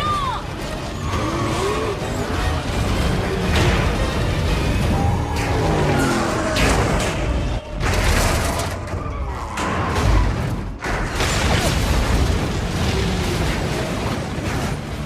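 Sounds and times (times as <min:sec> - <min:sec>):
film score: 0:00.0 - 0:15.0
explosion booms and rumbling blasts: 0:02.6 - 0:15.0.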